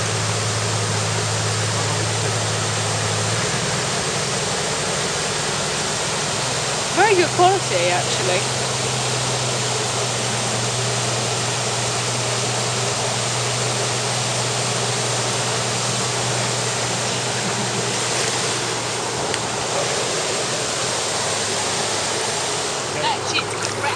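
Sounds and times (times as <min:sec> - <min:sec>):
water pouring over a weir: 0:08.4 - 0:23.9.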